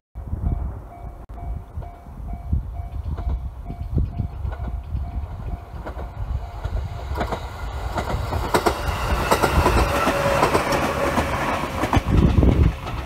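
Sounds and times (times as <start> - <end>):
electric train rumbling: 0.2 - 13.0
train wheels clacking over rail joints: 2.9 - 13.0.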